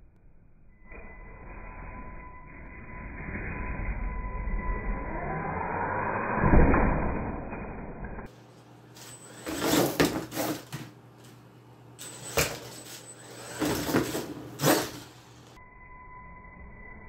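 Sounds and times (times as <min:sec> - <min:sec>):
tyres scrabbling on floor: 0:09.0 - 0:11.0.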